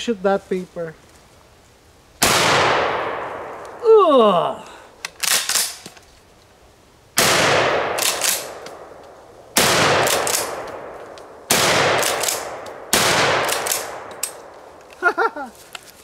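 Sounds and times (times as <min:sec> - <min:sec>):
shotgun shots echoing: 0:02.2 - 0:03.8, 0:07.2 - 0:09.0, 0:09.6 - 0:14.5
shotgun slide clacks: 0:05.1 - 0:06.0, 0:08.0 - 0:08.8, 0:10.0 - 0:10.8, 0:13.4 - 0:14.4.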